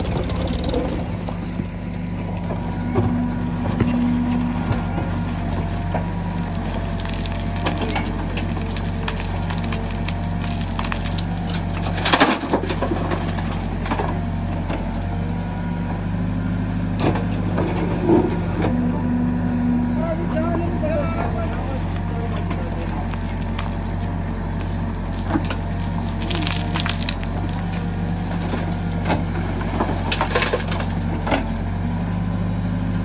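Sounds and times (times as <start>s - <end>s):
diesel engine running: 0.0s - 33.0s
stones and soil clattering: 5.6s - 15.8s, 21.4s - 32.3s.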